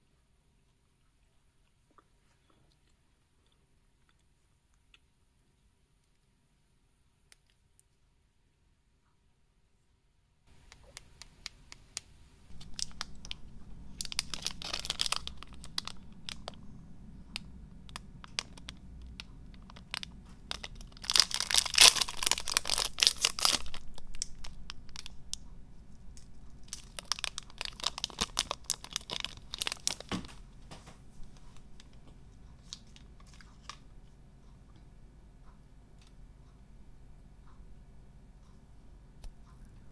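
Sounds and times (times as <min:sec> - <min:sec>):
plastic wrapper crackling: 0:12.5 - 0:16.6, 0:17.3 - 0:25.4, 0:26.1 - 0:32.0, 0:32.6 - 0:33.8.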